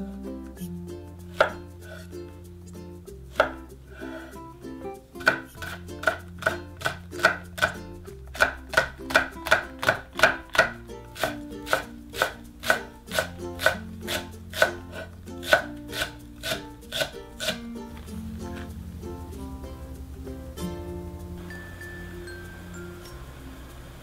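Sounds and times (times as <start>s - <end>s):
knife slicing on wooden board: 8.4s - 17.6s.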